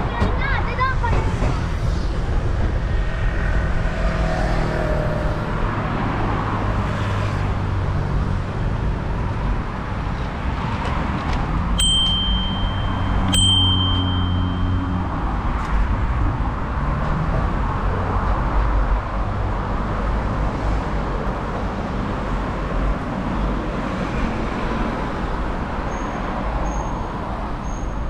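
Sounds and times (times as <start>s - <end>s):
wind and tyre rumble: 0.0s - 28.0s
bicycle bell ringing: 11.8s - 15.6s.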